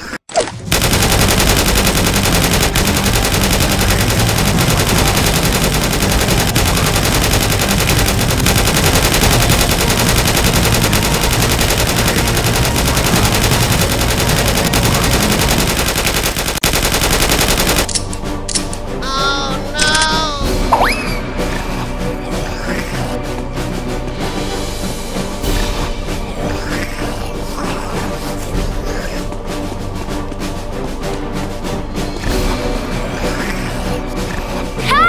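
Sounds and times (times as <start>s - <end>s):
automatic gunfire: 0.7s - 18.0s.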